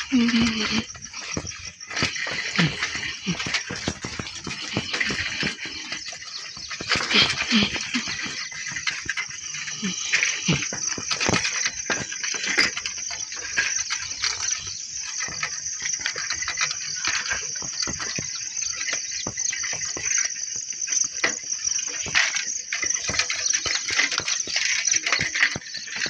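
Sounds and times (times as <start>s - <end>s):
bicycle rattling over bricks: 0.0s - 26.0s
crickets chirring: 0.0s - 26.0s.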